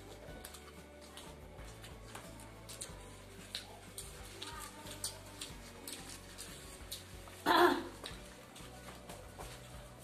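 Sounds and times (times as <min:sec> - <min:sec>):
paper wrappers being peeled: 0:00.0 - 0:07.4
chewing food: 0:00.0 - 0:09.6
faint background music: 0:00.0 - 0:10.0.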